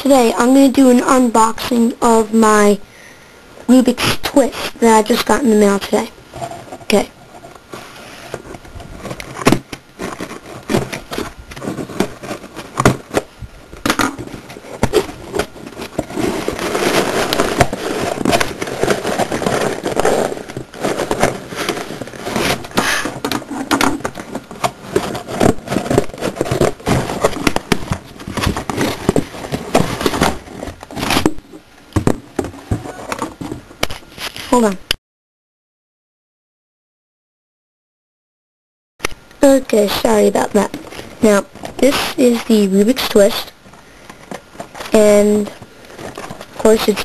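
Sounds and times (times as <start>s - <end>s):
packaging rustling and crinkling: 6.4s - 34.7s, 39.8s - 47.0s.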